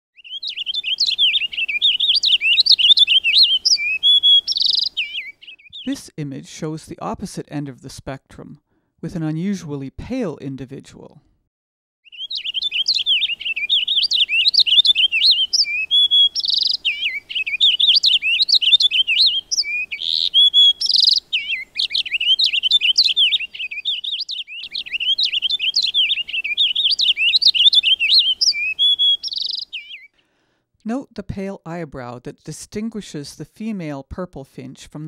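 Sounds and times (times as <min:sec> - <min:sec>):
finch singing warble: 0:00.2 - 0:06.0, 0:12.0 - 0:30.1.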